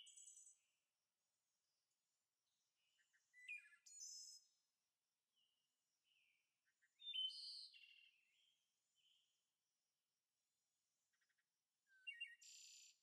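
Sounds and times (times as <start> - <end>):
faint bird chirps: 0.0 - 0.8, 2.5 - 4.7, 5.3 - 9.5, 11.0 - 13.0.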